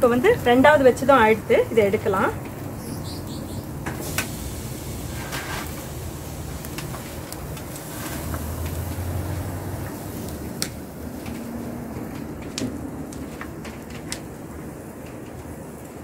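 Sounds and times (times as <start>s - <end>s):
skewers clicking on grill grate: 3.8s - 16.0s.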